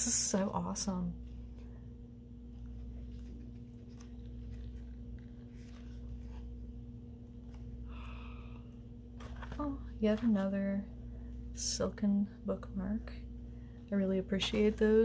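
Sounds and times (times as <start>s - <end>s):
steady low hum: 0.0s - 15.0s
book pages turning: 2.4s - 7.8s, 9.1s - 10.5s.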